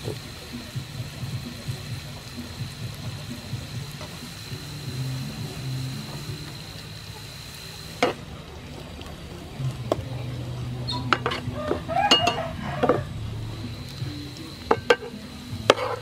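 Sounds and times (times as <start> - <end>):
lemongrass sizzling in oil: 0.0 - 16.0
spatula knocking and scraping pan: 11.1 - 13.1, 14.7 - 16.0.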